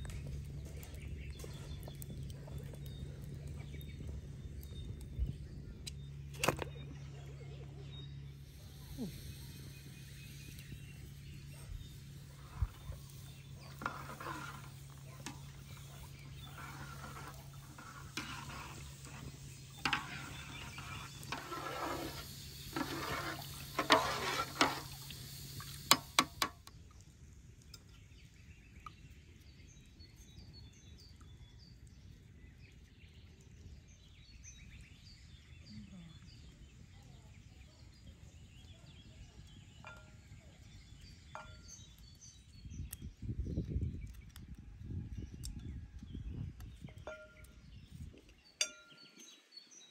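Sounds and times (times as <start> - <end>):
low hum: 0.0 - 27.9
spoon stirring in metal pot: 12.3 - 26.6.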